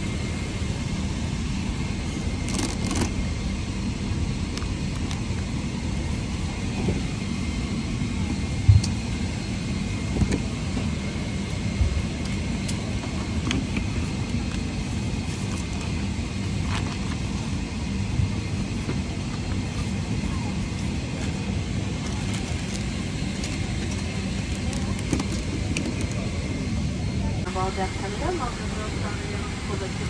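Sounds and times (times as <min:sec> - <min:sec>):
airliner cabin rumble: 0:00.0 - 0:30.0.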